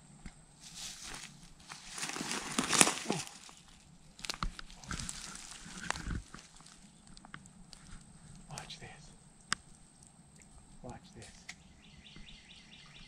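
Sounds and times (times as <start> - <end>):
footsteps through dry grass: 0.6 - 8.0
loud crunch: 0.6 - 8.0.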